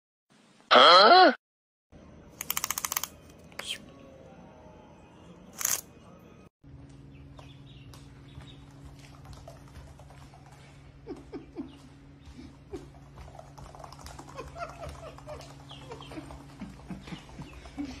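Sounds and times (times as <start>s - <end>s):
steady low hum: 2.0s - 18.0s
ducklings peeping: 6.9s - 9.6s, 14.8s - 18.0s.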